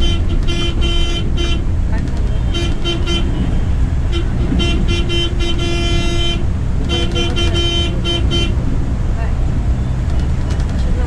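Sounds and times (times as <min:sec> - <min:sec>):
vehicle horn honking: 0:00.0 - 0:08.6
coach engine rumble and road noise: 0:00.0 - 0:11.0.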